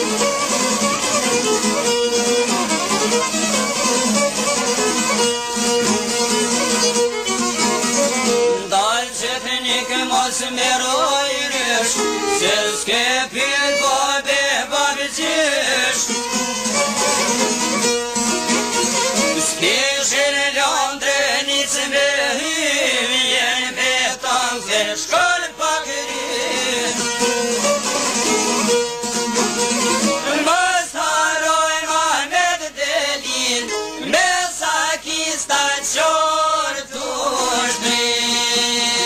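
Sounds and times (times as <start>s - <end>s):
plucked string instruments: 0.0s - 39.0s
person singing: 8.6s - 17.8s, 18.8s - 28.1s, 29.9s - 39.0s.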